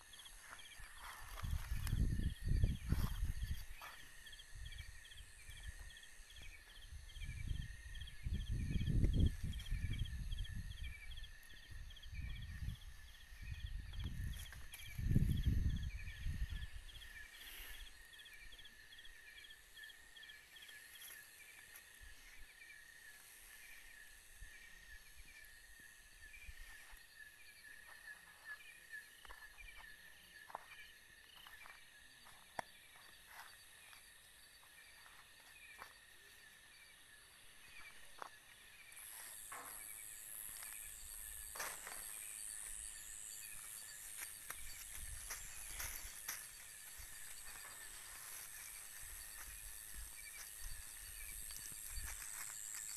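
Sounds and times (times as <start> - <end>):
clicks and rustles on ground: 0.0 - 4.1, 13.8 - 15.4, 37.8 - 52.9
crickets trilling: 0.0 - 52.9
high insect buzz: 31.2 - 52.9.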